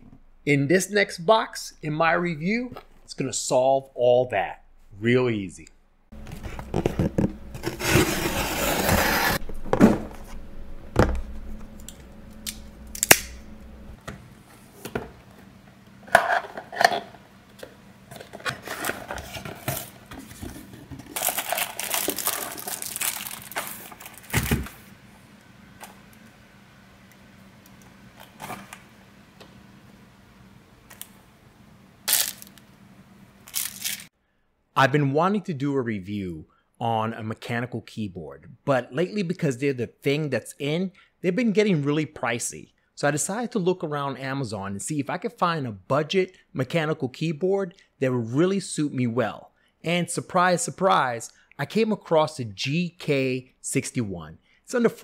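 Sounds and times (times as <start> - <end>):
packaging rustling: 6.2 - 10.4, 18.2 - 24.8, 32.1 - 32.6, 33.5 - 34.1
knife slicing packing tape: 33.5 - 34.1.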